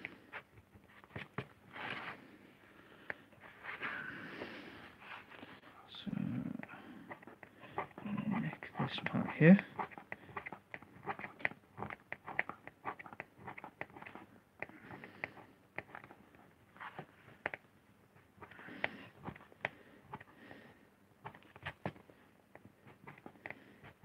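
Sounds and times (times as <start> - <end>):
gouge scratching lino: 6.6 - 17.6.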